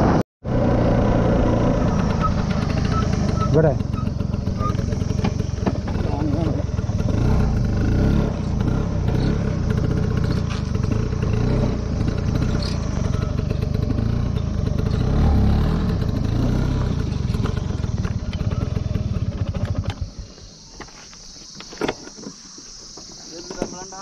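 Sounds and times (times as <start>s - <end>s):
scooter engine running: 0.5s - 23.7s.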